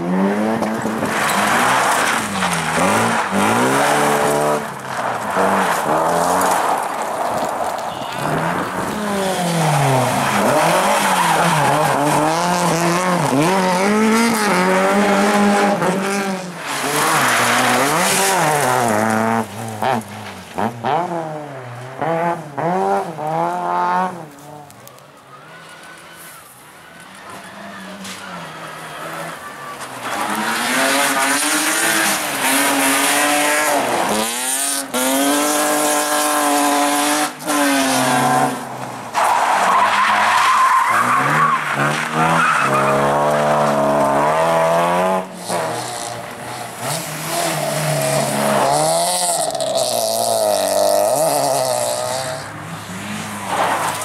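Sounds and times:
rally car engines revving: 0.0s - 54.0s
tyres sliding on gravel: 0.2s - 21.2s, 22.6s - 54.0s.

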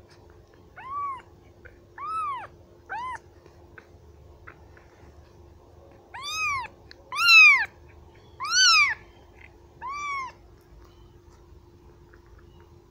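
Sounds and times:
kitten meowing: 0.7s - 1.3s, 2.0s - 3.2s, 6.1s - 7.8s, 8.4s - 9.0s, 9.8s - 10.4s.

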